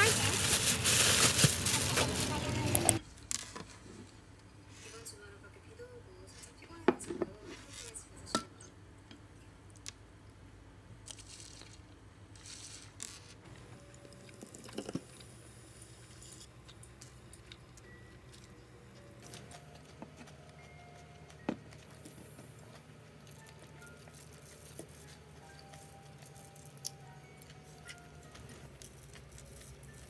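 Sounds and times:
chewing crunchy food: 16.5s - 30.0s.

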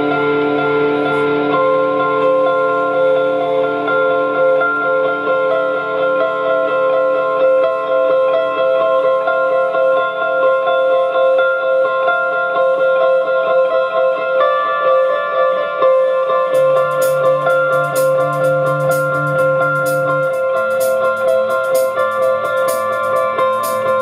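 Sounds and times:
electric guitars playing: 0.0s - 24.0s
drums with cymbal hits: 16.6s - 24.0s.

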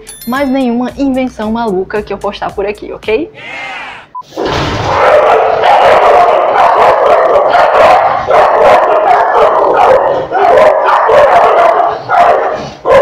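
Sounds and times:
dog barking: 4.3s - 13.0s.

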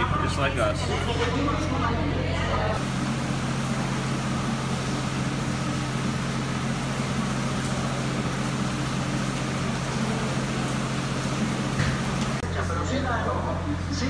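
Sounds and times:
heavy rain and wind: 2.8s - 12.5s.

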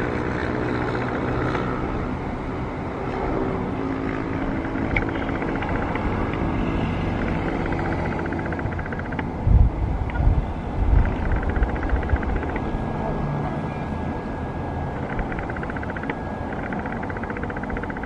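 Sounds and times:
jet engine noise: 0.0s - 18.0s.

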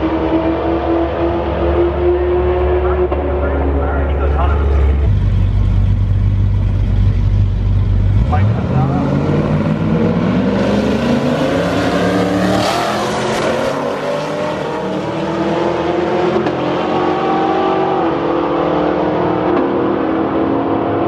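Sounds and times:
cars accelerating at full throttle: 0.0s - 21.0s.

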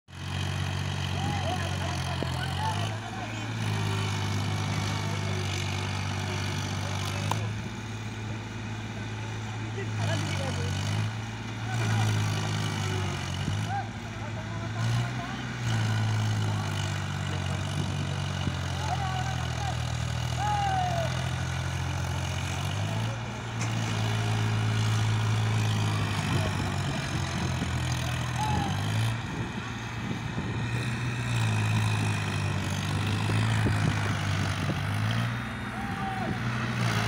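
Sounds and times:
tractor diesel engine under load: 0.1s - 37.0s.

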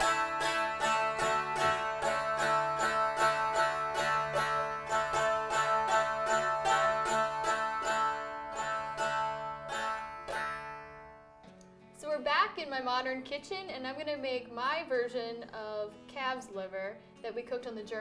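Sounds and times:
strummed zither folk tune: 0.0s - 11.8s.

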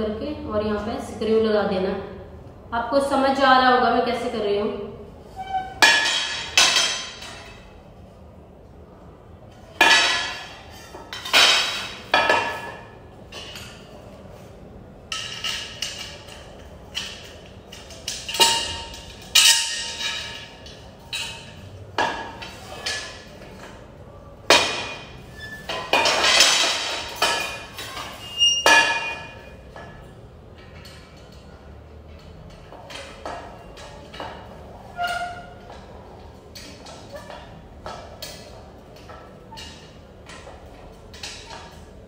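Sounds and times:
metal tubes clinking and knocking: 5.4s - 7.7s, 9.8s - 13.8s, 15.1s - 23.8s, 24.5s - 35.8s.

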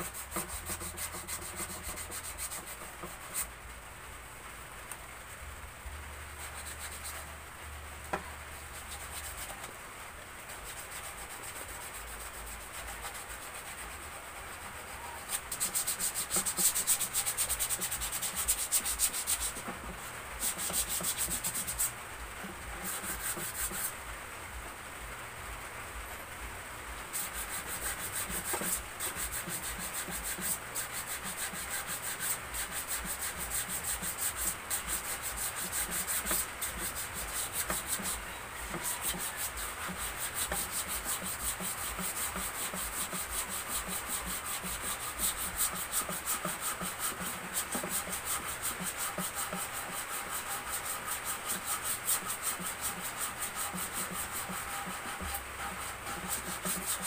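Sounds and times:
sandpaper rubbing on wood: 0.0s - 3.5s, 6.3s - 7.3s, 8.1s - 9.7s, 10.4s - 22.0s, 22.7s - 24.0s, 27.1s - 57.0s.

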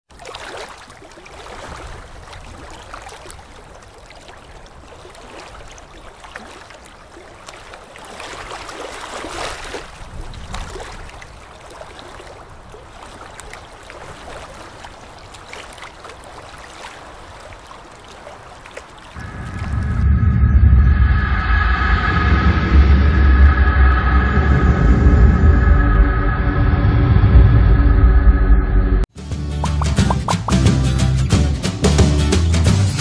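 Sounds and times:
waves washing onto sandy shore: 0.1s - 19.9s.

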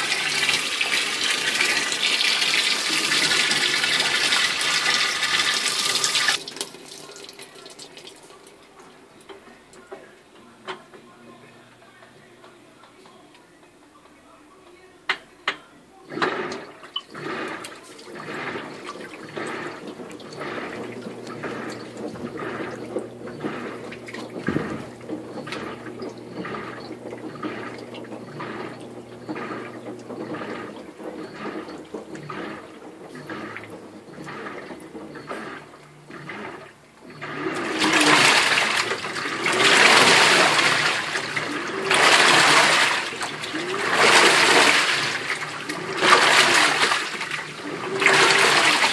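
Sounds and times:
washing machine swishing: 0.0s - 8.3s, 16.0s - 48.9s
washing machine motor hum: 0.0s - 13.4s, 14.9s - 48.9s
water sloshing: 16.1s - 48.9s.

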